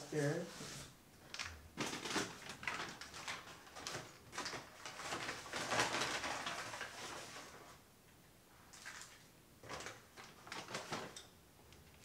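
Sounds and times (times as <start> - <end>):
paper bag crinkling and rustling: 1.3 - 7.8, 8.7 - 11.3.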